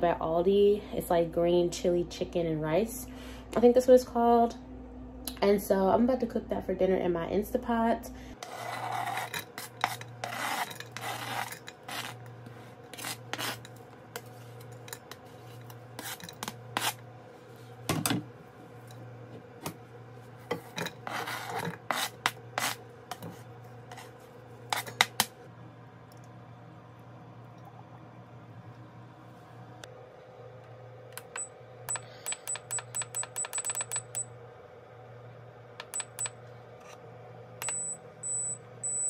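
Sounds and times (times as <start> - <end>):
spatula scraping cutting board: 8.4 - 14.4, 15.1 - 17.0, 20.5 - 25.0.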